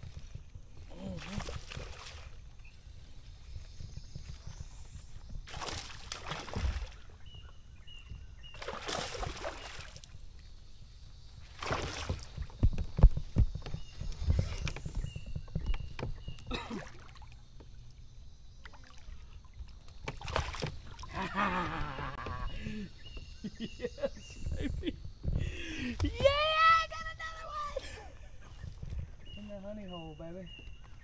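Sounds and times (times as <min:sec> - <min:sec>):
water splashing around a kayak: 0:00.0 - 0:23.5.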